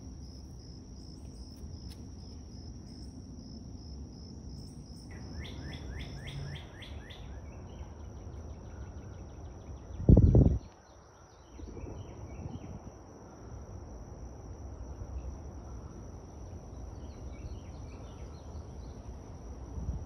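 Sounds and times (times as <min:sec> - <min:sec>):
high insect drone: 0:00.0 - 0:20.0
bird chirps: 0:04.7 - 0:08.0.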